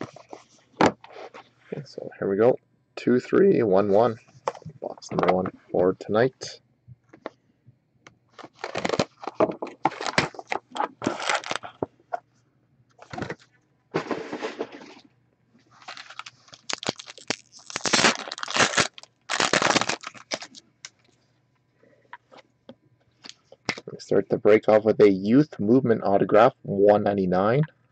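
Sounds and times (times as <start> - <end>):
plastic wrappers ripped and crinkled: 8.4 - 11.8, 15.8 - 21.0.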